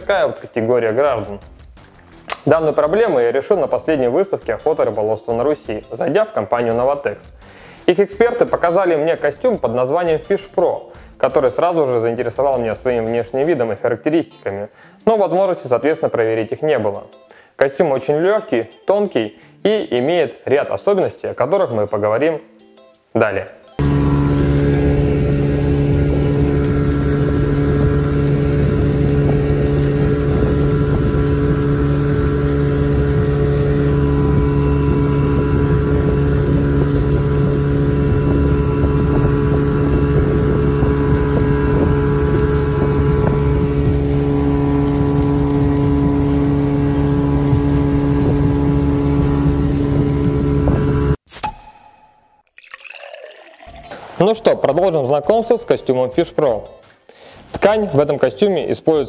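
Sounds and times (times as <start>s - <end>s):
motorboat engine running: 23.8s - 51.2s
wind on microphone: 23.8s - 51.2s.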